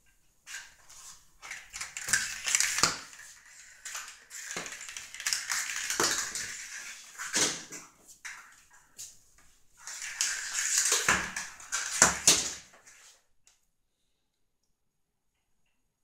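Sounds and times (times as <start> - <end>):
kitten claws skittering on tile: 0.5 - 8.7, 9.8 - 13.2.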